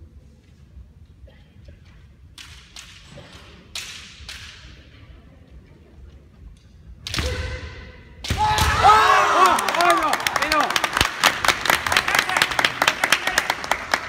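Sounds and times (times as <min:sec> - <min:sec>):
loud held shout: 0:08.3 - 0:10.8.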